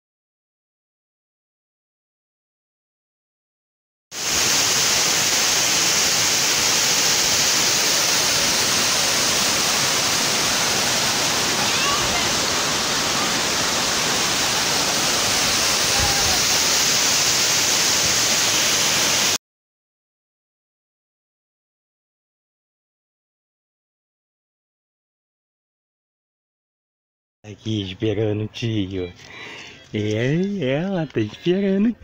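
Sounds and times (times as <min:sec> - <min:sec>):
waterfall roaring: 0:04.2 - 0:19.4.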